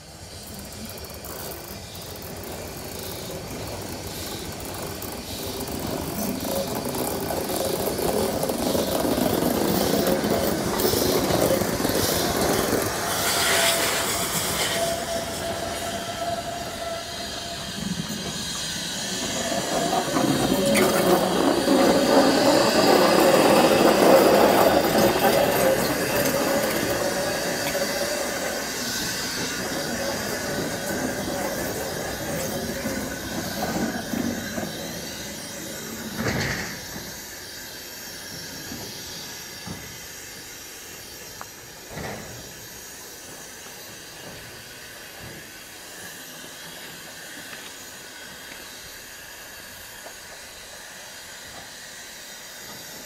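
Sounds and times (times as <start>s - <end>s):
steam locomotive hissing steam: 0.0s - 53.0s.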